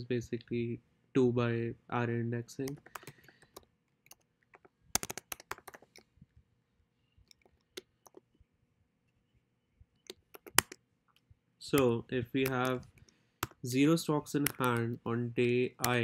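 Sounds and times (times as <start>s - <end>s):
computer keyboard typing: 2.6s - 6.0s, 7.3s - 8.3s, 10.1s - 10.8s, 11.7s - 13.6s, 14.4s - 15.0s.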